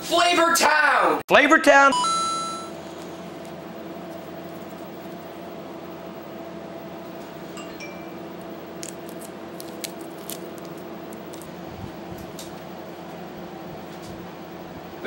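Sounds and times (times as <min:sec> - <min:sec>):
steady electrical hum: 0:00.0 - 0:15.0
paper mask crinkling: 0:08.8 - 0:12.7.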